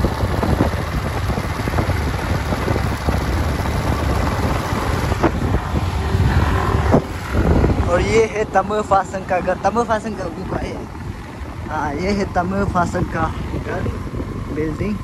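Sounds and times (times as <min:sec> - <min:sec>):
motor scooters running: 0:00.0 - 0:15.0
wind rumble on microphone: 0:00.0 - 0:15.0.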